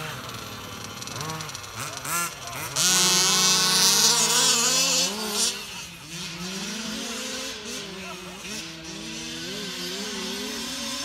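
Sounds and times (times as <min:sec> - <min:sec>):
rc car engines revving: 0:00.0 - 0:11.0.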